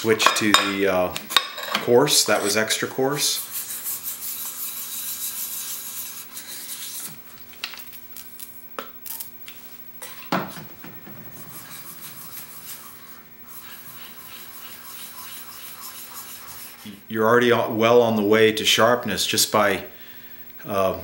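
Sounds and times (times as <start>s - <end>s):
blade scraping on sharpening stone: 11.6s - 16.9s.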